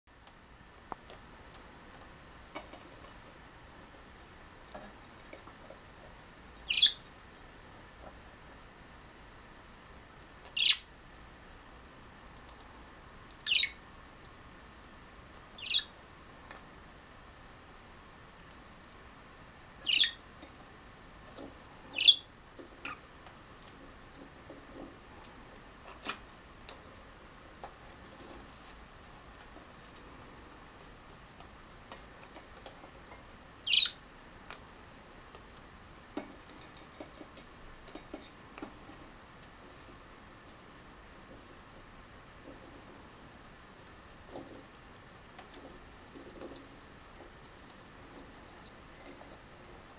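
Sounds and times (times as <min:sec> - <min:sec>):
budgerigar calls: 0:06.7 - 0:07.0, 0:10.6 - 0:10.9, 0:13.5 - 0:13.8, 0:15.6 - 0:15.9, 0:19.8 - 0:20.2, 0:22.0 - 0:23.0, 0:33.6 - 0:34.0
bird scrabbling with taps and clicks: 0:25.8 - 0:26.9, 0:36.2 - 0:39.0.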